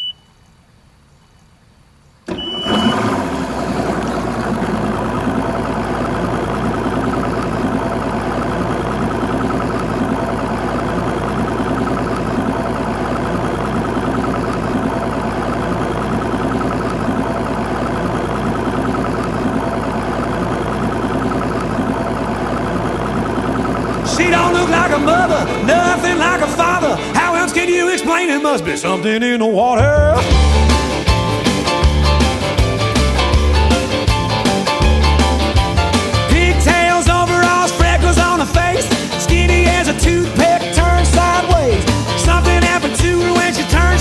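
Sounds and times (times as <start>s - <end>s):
short high beep: 0.0s - 0.3s, 2.3s - 3.0s
outboard motor idling: 2.3s - 28.6s, 30.0s - 44.0s.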